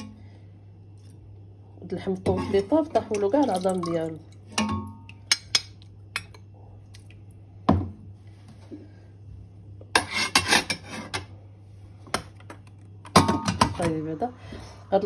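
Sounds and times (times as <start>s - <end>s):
metal skimmer clinking on pot: 2.3s - 6.4s.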